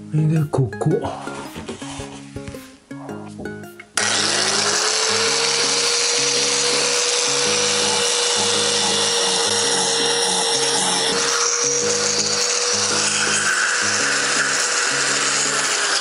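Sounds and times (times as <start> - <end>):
background music: 0.0 - 16.0
power tool motor whining: 4.0 - 16.0.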